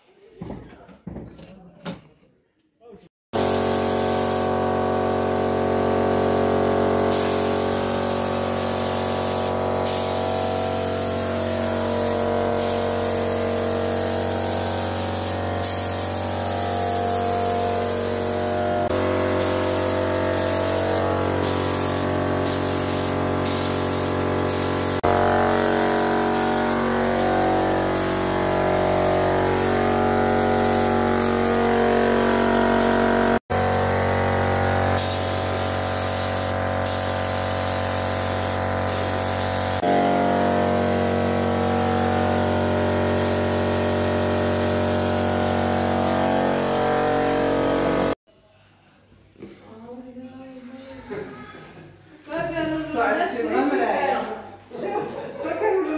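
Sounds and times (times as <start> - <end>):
paint spray gun hissing: 3.4 - 48.2.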